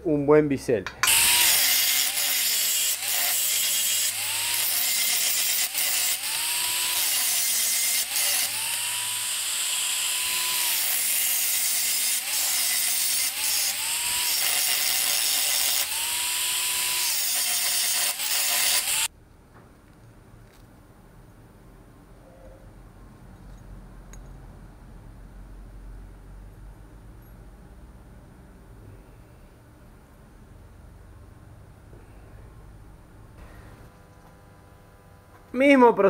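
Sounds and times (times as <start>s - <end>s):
angle grinder grinding steel: 1.0s - 19.1s.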